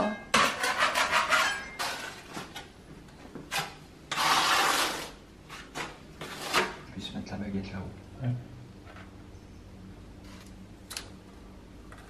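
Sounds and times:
metal scraper scraping tile: 0.3s - 2.5s, 3.5s - 6.8s.

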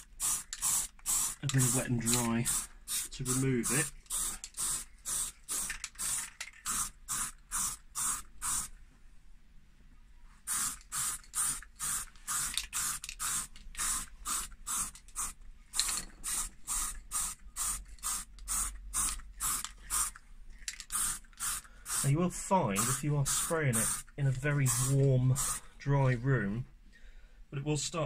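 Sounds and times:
spray paint can hissing: 0.0s - 8.7s, 10.5s - 20.1s, 20.9s - 22.1s, 22.8s - 24.1s, 24.7s - 25.6s.

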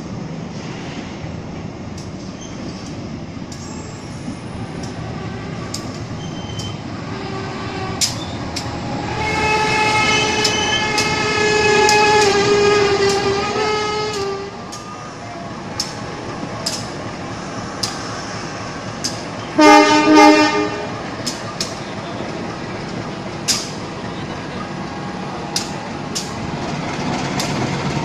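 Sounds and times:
single-note train horn: 9.1s - 14.6s, 19.5s - 21.0s
locomotive wheels clicking: 10.3s - 18.2s, 21.1s - 28.0s.

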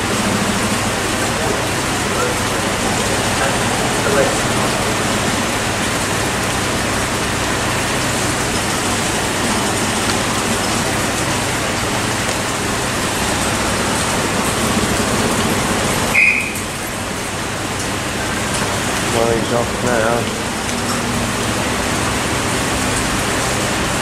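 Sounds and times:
electric train humming: 0.0s - 23.2s
rain hissing: 0.0s - 24.0s
short high beep: 16.2s - 16.6s.

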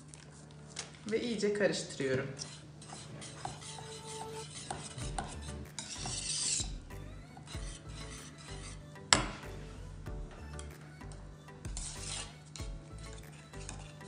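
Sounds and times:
whisk scraping metal pot: 2.0s - 9.5s, 11.7s - 14.0s.

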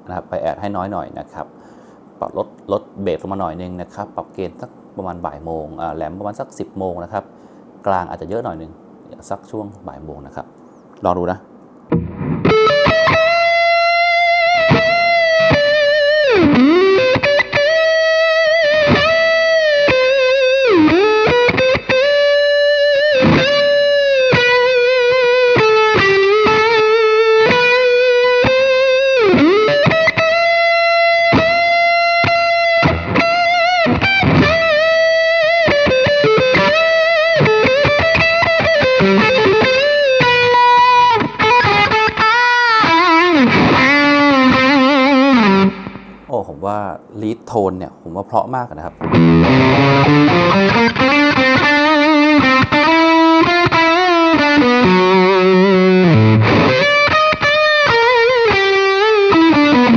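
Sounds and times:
distorted electric guitar solo: 11.9s - 46.3s, 48.9s - 59.9s.

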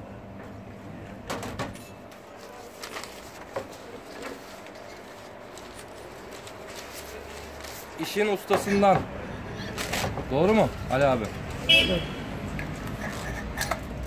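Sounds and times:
rustling of wax sheets: 2.1s - 8.9s.

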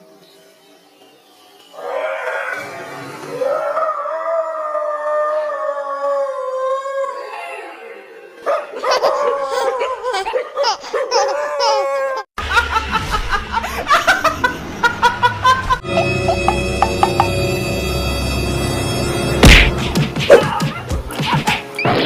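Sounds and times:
high-pitched human laughter: 8.8s - 16.5s
music with strong beat: 16.2s - 17.5s, 19.4s - 21.8s.

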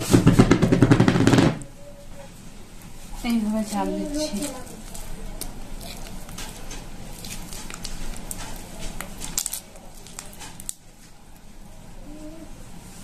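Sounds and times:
fruit pulp squelching: 2.7s - 11.5s.

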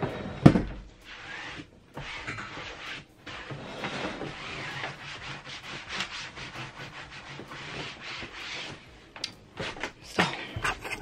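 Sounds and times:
hands rubbing fabric upholstery: 1.1s - 8.9s.

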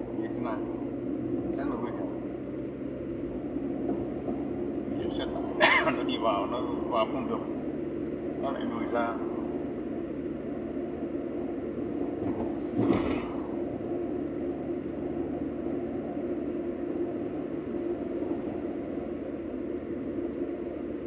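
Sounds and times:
engine and tyre drone: 0.0s - 21.0s
short thump: 12.2s - 13.5s.

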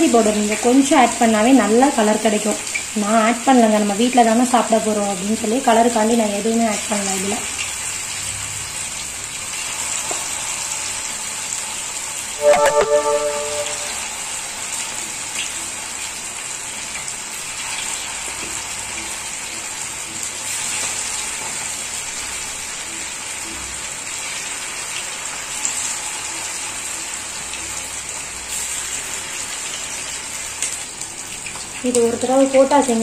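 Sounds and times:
chicken deep-frying in hot oil: 0.0s - 13.7s, 14.5s - 33.0s.

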